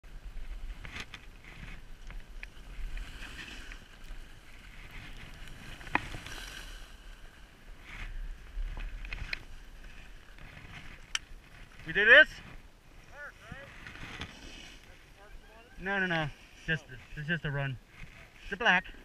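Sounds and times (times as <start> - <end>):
skis hissing over snow: 13.1 - 15.2.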